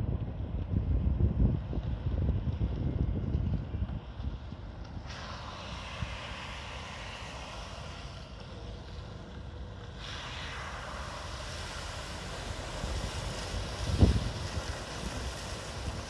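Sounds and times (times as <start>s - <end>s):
wind rumbling on microphone: 0.0s - 16.0s
distant vehicle wading through water: 5.1s - 16.0s
water hissing: 5.1s - 16.0s.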